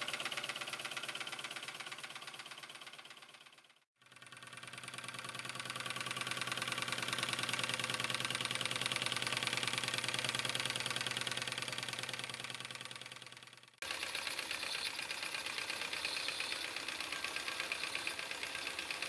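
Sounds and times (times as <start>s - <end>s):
steam traction engine running: 4.4s - 19.0s.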